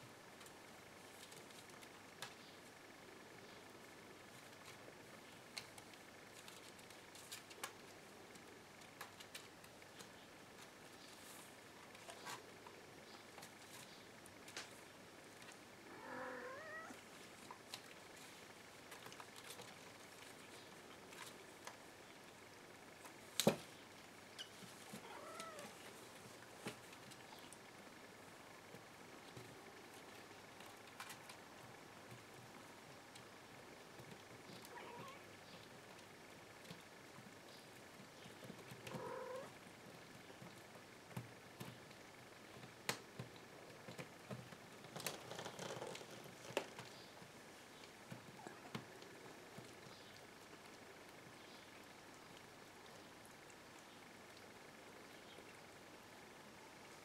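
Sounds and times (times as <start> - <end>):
kitten mewing: 15.9 - 17.0, 25.0 - 25.7
kittens scratching in basket: 43.8 - 49.9.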